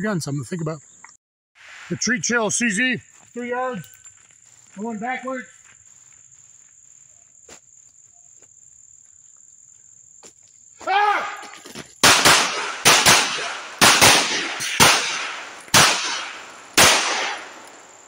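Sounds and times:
high insect trill: 0:00.0 - 0:18.0
man yelling: 0:10.8 - 0:11.6
pistol shots with echo: 0:12.0 - 0:18.0.

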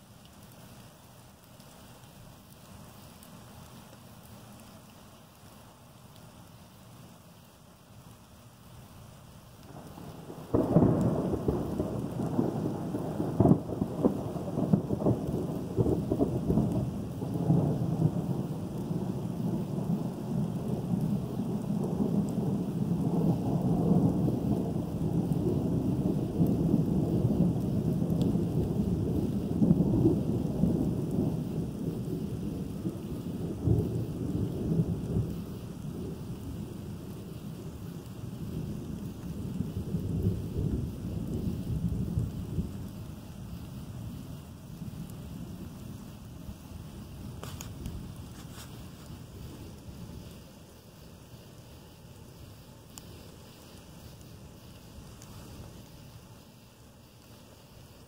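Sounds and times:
light rain: 0:00.0 - 0:58.0
thunder cracking and rumbling: 0:09.6 - 0:50.4.

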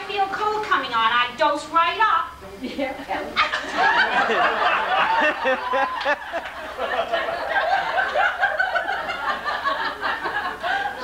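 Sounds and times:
audience laughing: 0:03.4 - 0:11.0.

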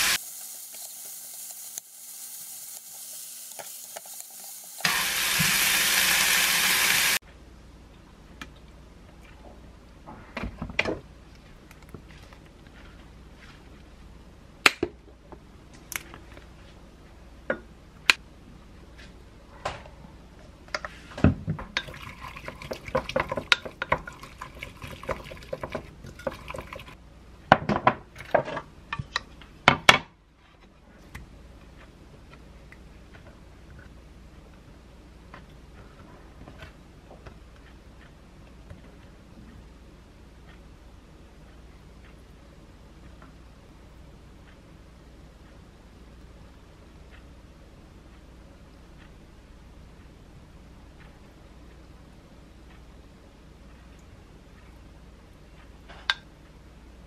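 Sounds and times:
chicken sizzling in a frying pan: 0:00.0 - 0:07.2.

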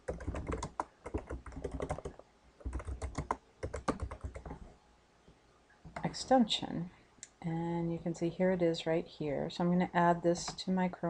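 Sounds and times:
typing on computer keyboard: 0:00.0 - 0:04.7.

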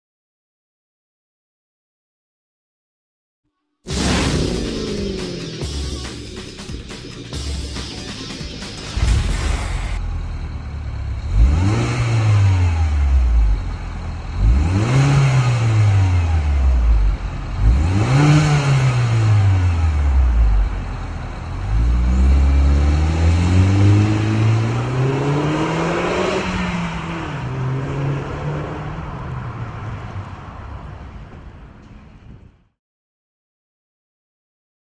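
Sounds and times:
car engine revving: 0:03.9 - 0:31.2.

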